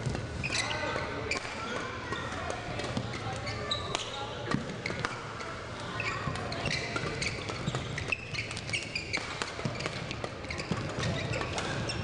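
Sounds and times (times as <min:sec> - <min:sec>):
shoes squeaking on court: 0:00.0 - 0:12.0
racket hitting shuttlecock: 0:06.3 - 0:11.7.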